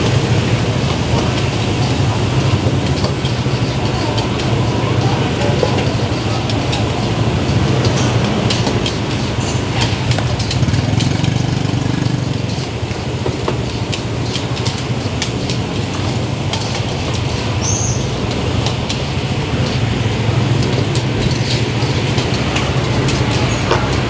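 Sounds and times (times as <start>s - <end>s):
gas burners rumbling: 0.0s - 24.0s
oil bubbling in fryer: 0.0s - 24.0s
rice frying: 0.0s - 24.0s
metal spatulas clinking on pans: 12.3s - 24.0s.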